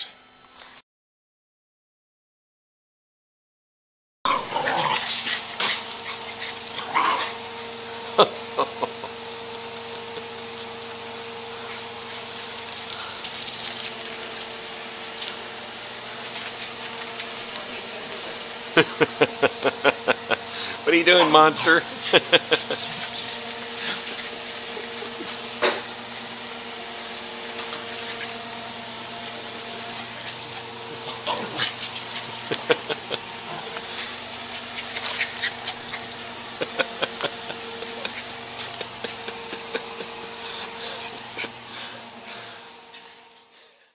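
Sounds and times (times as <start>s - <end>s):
dogs scuffling: 4.3s - 8.0s, 9.1s - 19.8s, 21.2s - 43.6s
small dogs yipping and whimpering: 4.3s - 9.2s, 27.5s - 28.6s, 29.4s - 41.9s
electrical hum: 4.3s - 43.9s.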